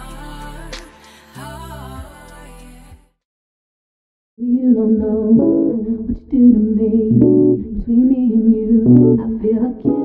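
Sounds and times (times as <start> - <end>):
person singing: 0.0 - 3.2, 8.8 - 10.0
plucked guitar: 7.1 - 7.7, 8.9 - 9.2.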